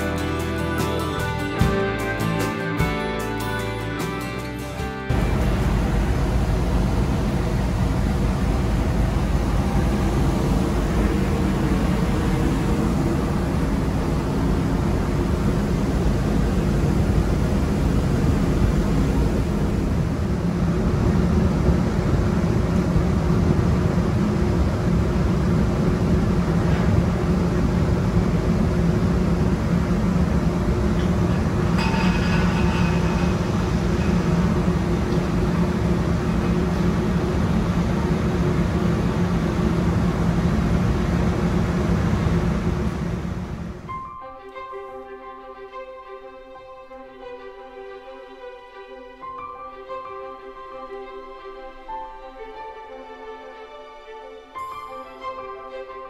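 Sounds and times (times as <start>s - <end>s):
ship engines rumbling: 0.0s - 44.1s
brief high tone: 54.6s - 56.0s.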